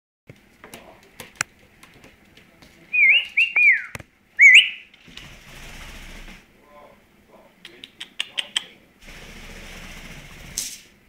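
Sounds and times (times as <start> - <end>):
soft scuffling: 0.4 - 3.6
parrot whistling: 2.9 - 4.9.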